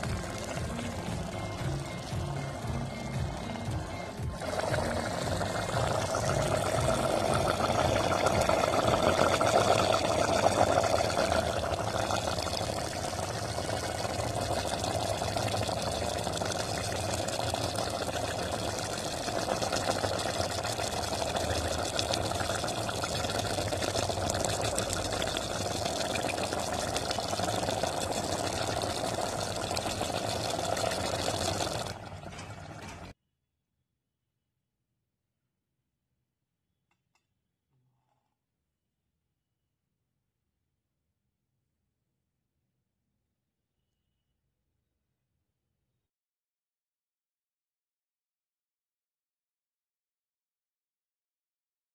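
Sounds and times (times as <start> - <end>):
curry simmering and bubbling: 0.0 - 33.2.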